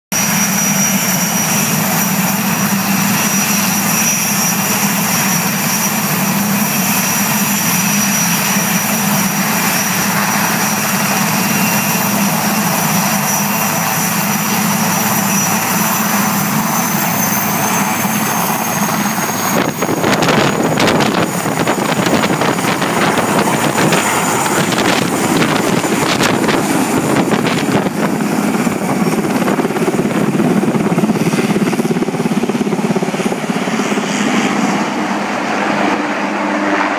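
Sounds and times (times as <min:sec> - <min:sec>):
helicopter engines and rotor: 0:00.1 - 0:36.9.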